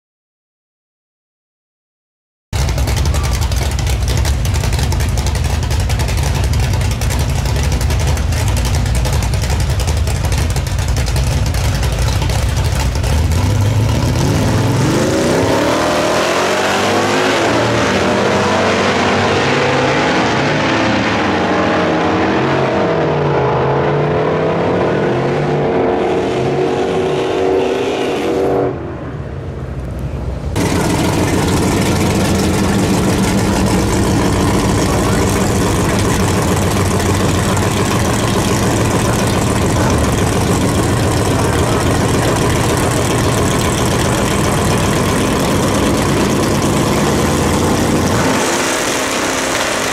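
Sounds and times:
drag car engine idling: 2.6s - 14.8s, 30.6s - 49.9s
drag car engine revving hard: 2.6s - 28.8s, 30.6s - 49.9s
drag car accelerating away: 2.6s - 49.9s.

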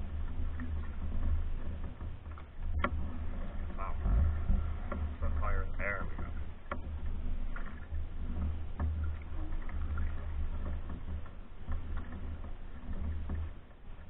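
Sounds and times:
canoe paddling rumble: 0.0s - 14.0s
paddle ticking against hull: 0.0s - 14.0s.

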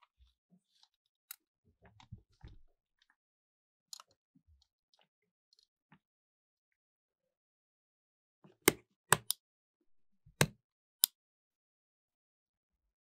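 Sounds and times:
plastic controller parts clicking: 8.7s - 9.4s.

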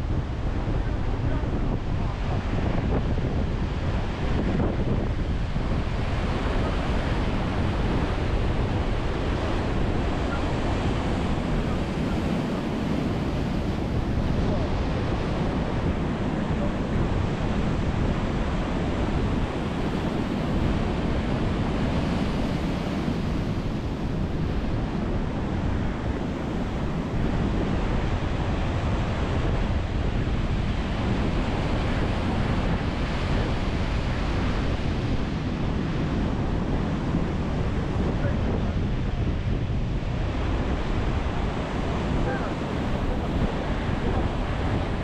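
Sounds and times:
deep rumble of surf: 0.0s - 45.0s
ocean surf breaking: 0.0s - 45.0s.

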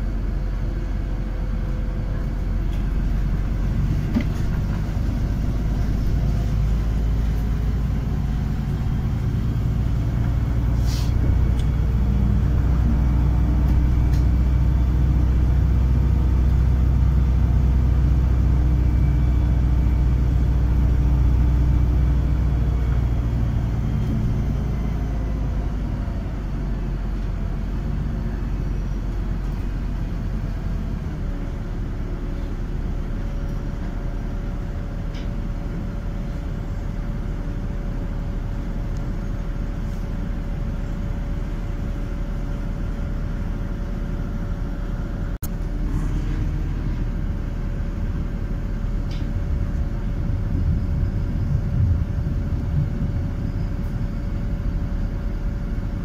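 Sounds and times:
bus engine drone: 0.0s - 56.0s
road rumble: 0.0s - 56.0s.

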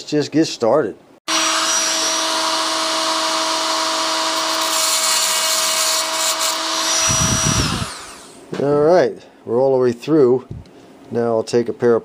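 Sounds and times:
rotary tool cutting metal: 1.3s - 8.4s.

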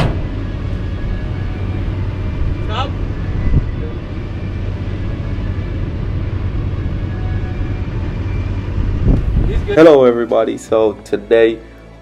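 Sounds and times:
vehicle engine idling: 0.0s - 11.4s.

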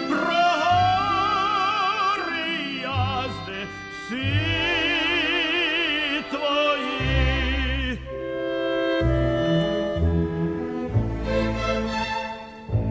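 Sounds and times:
operatic voice singing: 0.0s - 8.2s
orchestral accompaniment: 0.0s - 12.9s.

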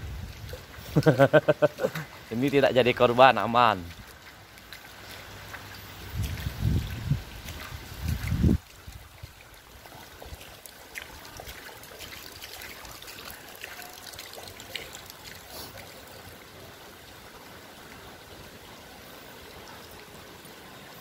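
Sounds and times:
rain on floodwater: 0.0s - 21.0s
water splashes: 0.0s - 21.0s.

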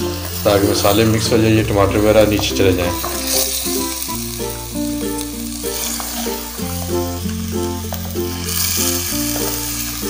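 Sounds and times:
background music with bass notes: 0.0s - 10.0s
food sizzling in a pot: 0.0s - 10.0s
wooden spoon stirring: 0.1s - 4.1s.

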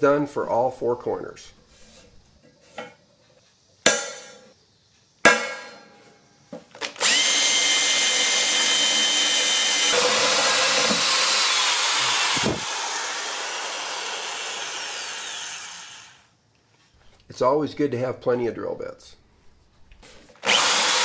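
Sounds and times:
electric drill boring through steel: 6.9s - 16.3s, 20.4s - 21.0s.

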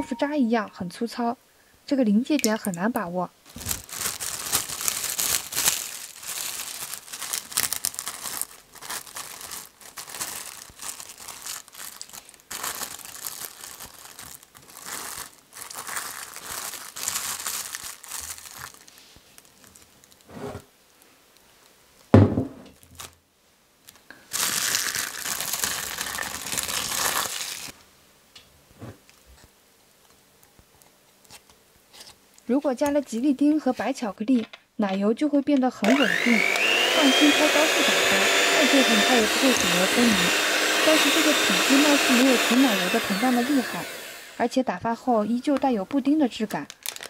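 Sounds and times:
cling film crinkling: 2.5s - 20.3s, 23.8s - 27.8s, 45.4s - 47.0s
dull knocks: 22.2s - 22.6s.

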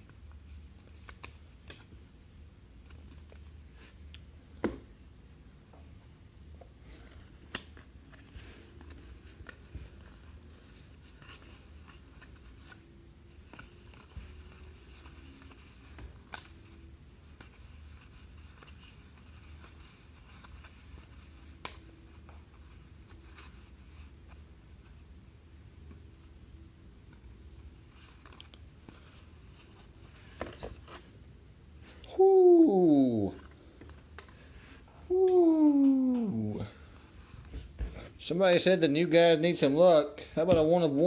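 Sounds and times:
cards rustling: 0.0s - 2.0s, 6.8s - 24.5s, 27.0s - 31.2s
low steady hum: 0.0s - 41.0s.

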